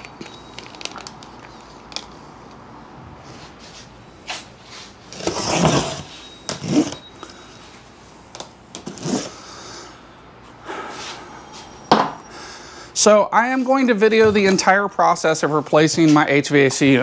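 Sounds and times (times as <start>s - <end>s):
cardboard box being cut open: 5.1s - 7.0s.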